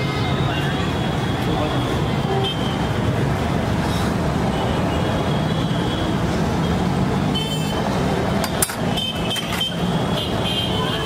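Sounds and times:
street traffic noise: 0:00.0 - 0:11.0.

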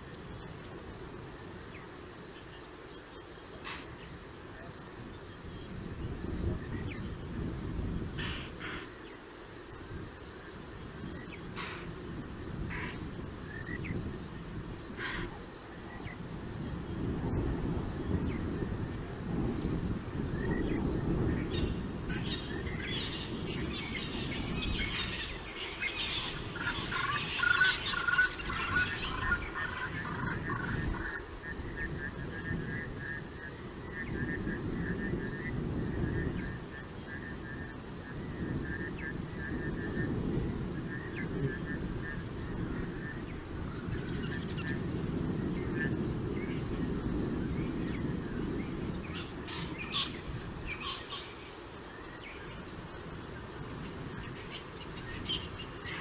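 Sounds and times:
loud mixed animal calls: 0:14.9 - 0:15.5, 0:21.6 - 0:32.1.

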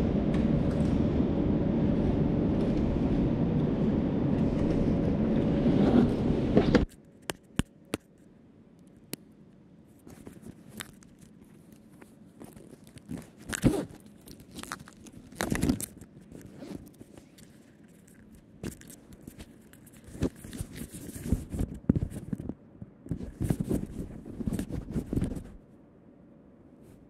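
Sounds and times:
rustling and scraping of gear: 0:09.9 - 0:25.6.

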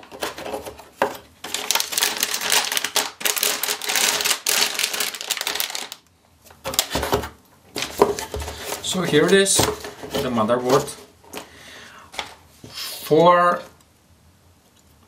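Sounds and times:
plastic bag crinkling: 0:01.4 - 0:07.1.

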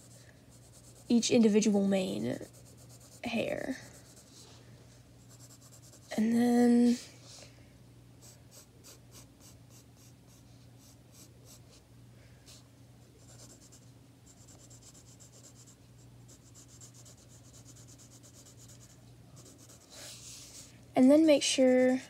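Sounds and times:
pencil scratching on paper: 0:00.0 - 0:01.2, 0:02.3 - 0:04.4, 0:05.3 - 0:06.1, 0:13.2 - 0:13.8, 0:14.4 - 0:20.3
steady low hum: 0:00.0 - 0:22.0.

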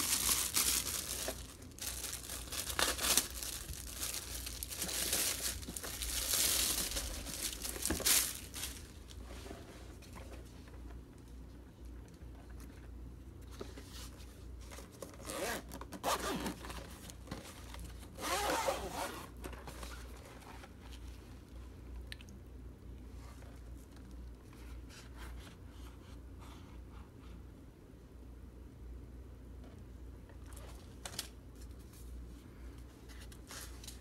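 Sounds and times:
zipper pulled: 0:15.2 - 0:16.6, 0:18.2 - 0:19.3.

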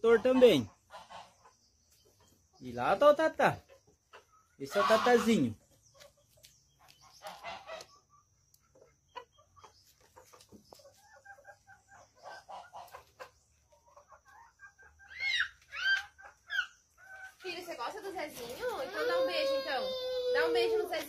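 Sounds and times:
chickens clucking softly: 0:00.0 - 0:18.9
chicken squawks: 0:03.7 - 0:05.6, 0:07.2 - 0:17.4.

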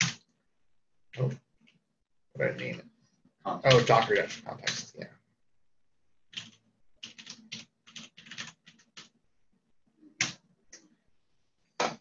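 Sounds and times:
typing on computer keyboard: 0:06.3 - 0:09.2.

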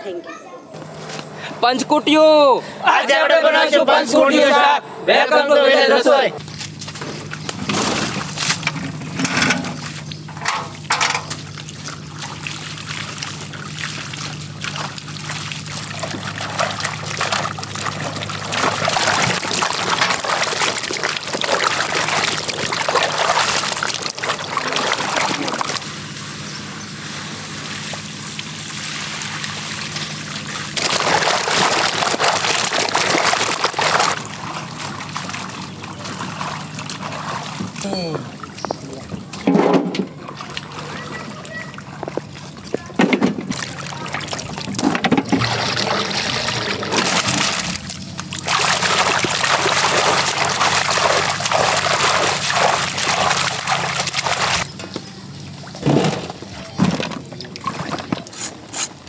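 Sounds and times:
water pouring and splashing: 0:06.4 - 0:59.0.

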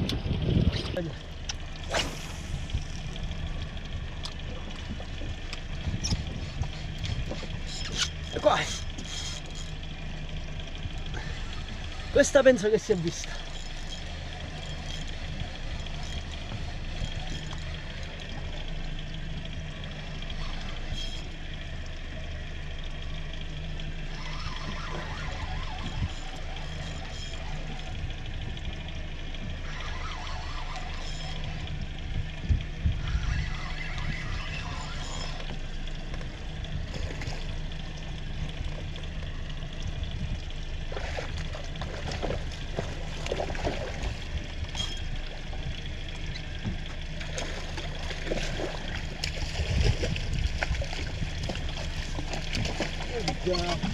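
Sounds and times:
outboard motor idling: 0:00.0 - 0:53.9
water slapping against boat: 0:32.6 - 0:53.9.

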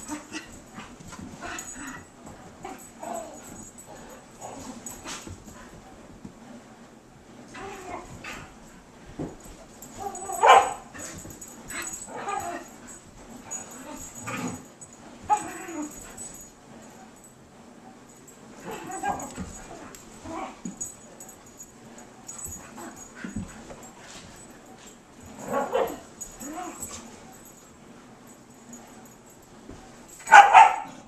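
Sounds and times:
dogs vocalizing while playing: 0:00.0 - 0:05.9, 0:09.4 - 0:16.6, 0:18.6 - 0:27.5.

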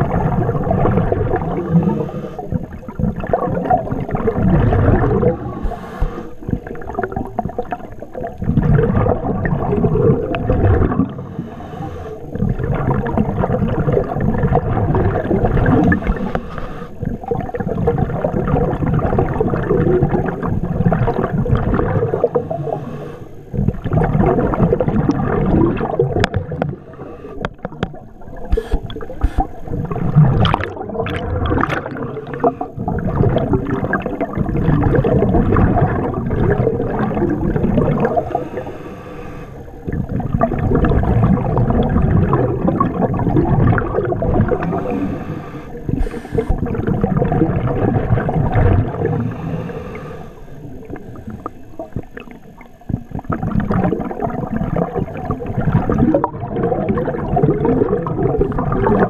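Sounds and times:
bubbles gurgling underwater: 0:00.0 - 0:59.0
diver breathing through regulator: 0:01.6 - 0:02.8, 0:05.2 - 0:06.6, 0:11.0 - 0:12.5, 0:15.9 - 0:17.2, 0:22.2 - 0:23.6, 0:26.4 - 0:27.7, 0:28.5 - 0:29.8, 0:38.0 - 0:40.1, 0:44.2 - 0:46.7, 0:48.9 - 0:51.7.

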